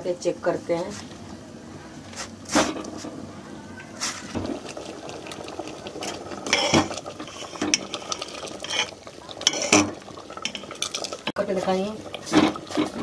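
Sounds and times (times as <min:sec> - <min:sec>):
ladle stirring boiling dal: 0:03.8 - 0:13.0
metal clinks and scrapes on pot: 0:06.0 - 0:11.3.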